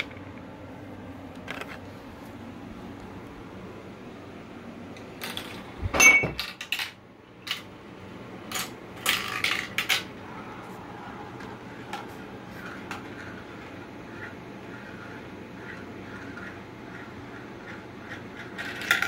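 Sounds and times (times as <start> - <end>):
marbles clattering on plastic track: 1.4 - 1.8, 5.0 - 5.7, 6.4 - 7.7, 8.5 - 10.2, 18.1 - 19.0.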